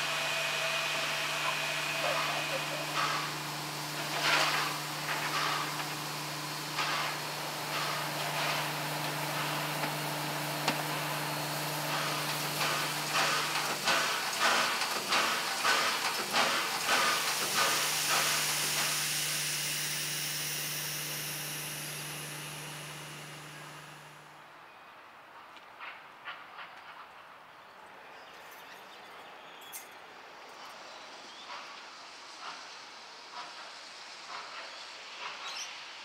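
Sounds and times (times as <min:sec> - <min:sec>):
locomotive exhaust chuffs: 0:00.0 - 0:24.3
strong steam hiss: 0:00.0 - 0:24.3, 0:30.8 - 0:36.0
steam locomotive hum and hiss: 0:00.0 - 0:27.6, 0:29.4 - 0:36.0.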